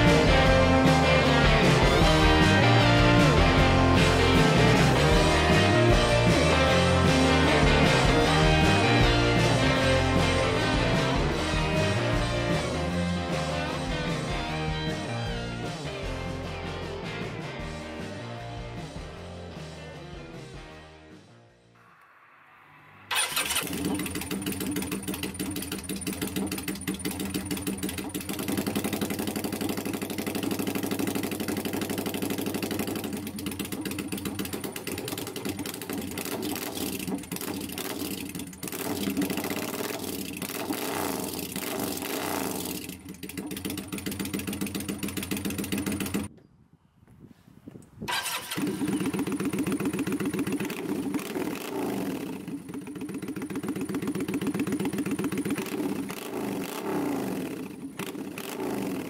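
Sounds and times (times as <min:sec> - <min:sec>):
motorcycle engine revving: 0:00.0 - 0:19.4, 0:21.8 - 0:46.3, 0:48.1 - 0:59.0.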